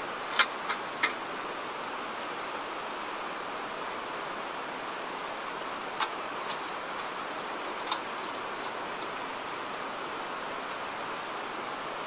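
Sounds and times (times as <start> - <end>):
rushing water: 0.0 - 12.0.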